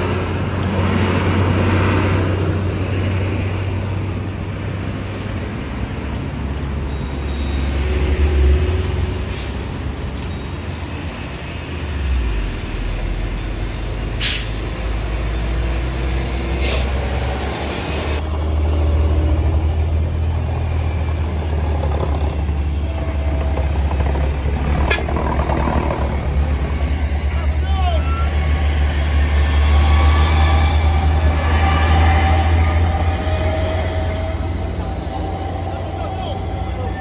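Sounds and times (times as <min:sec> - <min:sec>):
truck engines rumbling: 0:00.0 - 0:37.0
short sharp air hisses: 0:14.1 - 0:14.7, 0:16.2 - 0:18.2.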